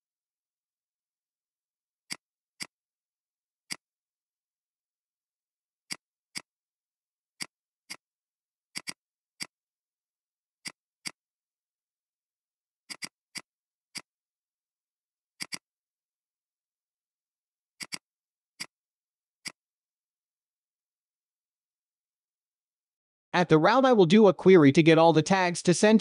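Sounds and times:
computer mouse and key clicks: 2.1 - 2.8, 8.7 - 9.6, 12.9 - 14.1, 15.4 - 15.7, 17.8 - 18.8.

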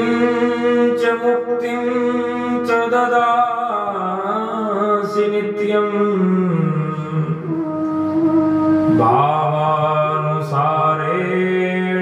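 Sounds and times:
man chanting a hymn: 8.8 - 12.0.

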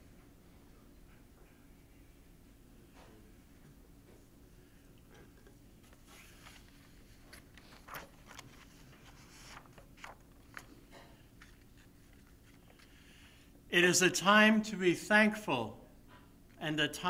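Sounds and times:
faint clicks and rustles: 5.0 - 13.0.

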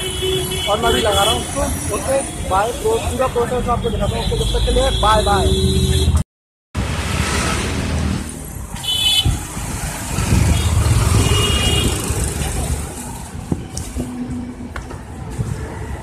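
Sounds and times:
low traffic rumble: 6.8 - 16.0
vehicle engines running: 6.9 - 16.0.

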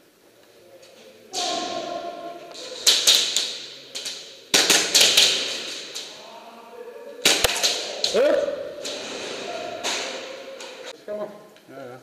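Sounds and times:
airsoft guns firing: 2.8 - 6.1, 7.2 - 8.2.

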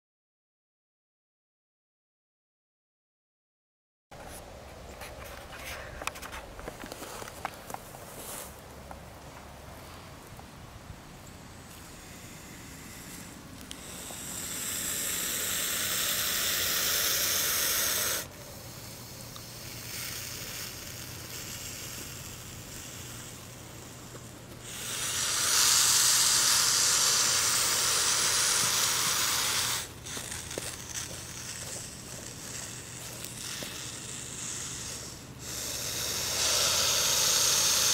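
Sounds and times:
snake hissing: 11.6 - 37.9.

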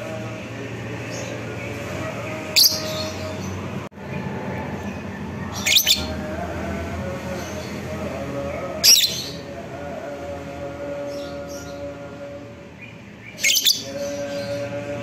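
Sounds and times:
lovebird shrill chirps: 5.6 - 6.1.

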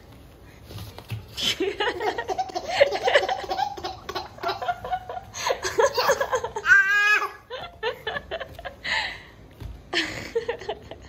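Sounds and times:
baby giggling: 1.9 - 7.6.

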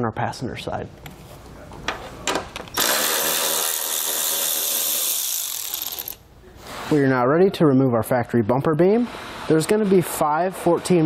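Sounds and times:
electric ratchet motor whine: 2.8 - 6.2.

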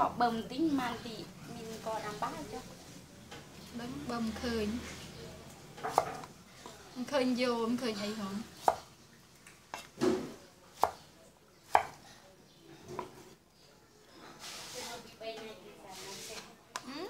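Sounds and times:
knife striking wooden board: 11.7 - 12.0.

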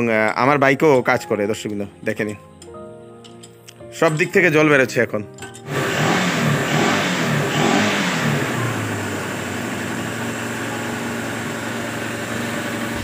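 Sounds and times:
motorcycle engine revving and idling: 5.6 - 13.0.

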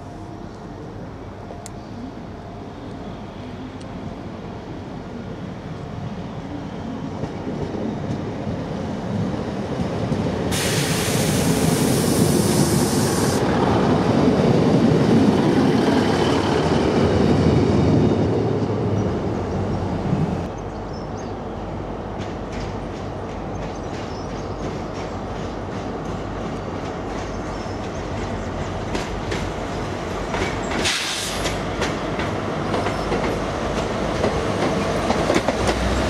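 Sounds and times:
train engine and wheel rumble: 0.0 - 36.0
hiss: 10.5 - 13.5, 30.8 - 31.7.

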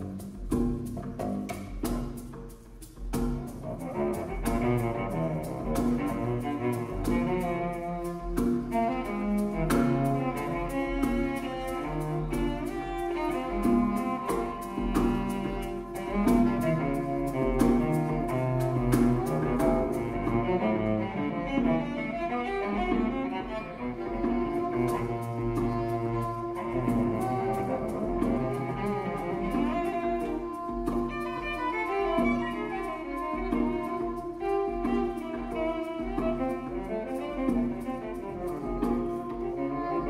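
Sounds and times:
hand drum hits: 0.0 - 3.8
bowed cello: 0.0 - 40.0.

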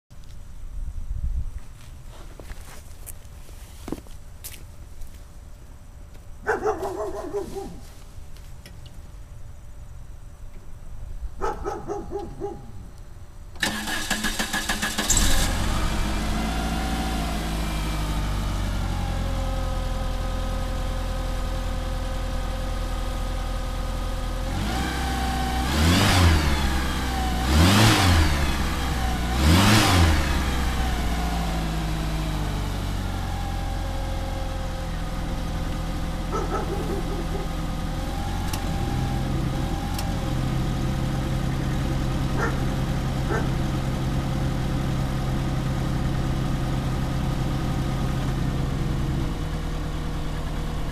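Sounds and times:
car engine idling and revving: 13.6 - 50.9.

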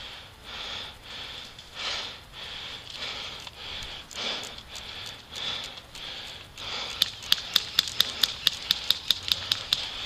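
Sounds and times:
sharp clicks: 2.9 - 10.0.

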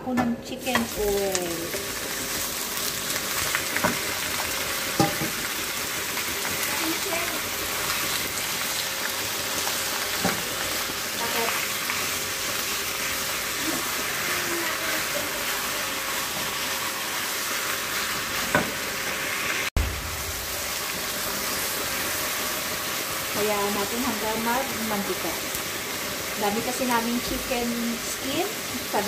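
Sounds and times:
chicken skin sizzling in a pan: 0.6 - 29.0.

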